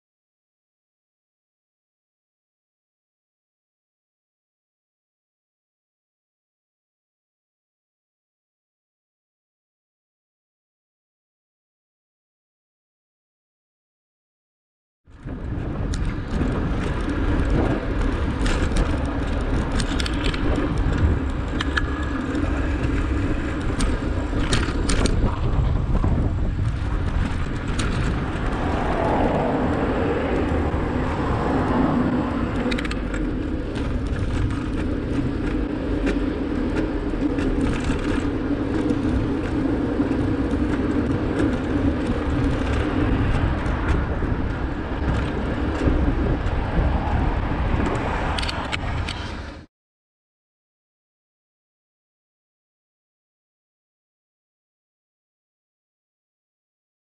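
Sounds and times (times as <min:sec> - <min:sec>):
tyre and traffic noise: 0:15.1 - 0:49.7
wind rumbling on microphone: 0:15.1 - 0:49.7
clicks and rattles: 0:18.0 - 0:25.6.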